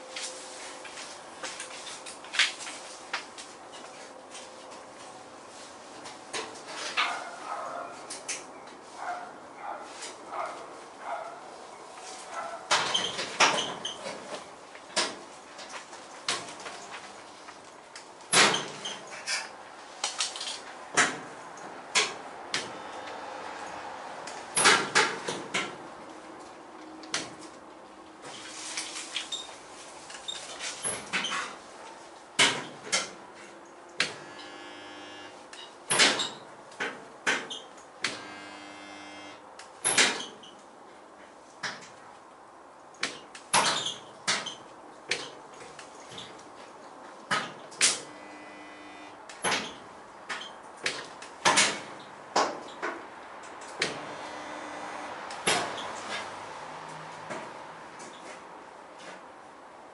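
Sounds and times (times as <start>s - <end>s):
short buzzing: 34.2s - 35.4s, 38.1s - 39.4s, 47.9s - 49.2s, 54.0s - 55.2s.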